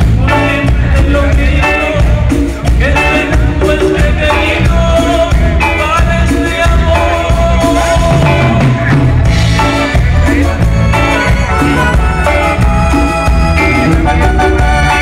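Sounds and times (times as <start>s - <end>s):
congas: 0.0s - 15.0s
drum kit: 0.0s - 15.0s
electric bass: 0.0s - 15.0s
electric guitar: 0.0s - 15.0s.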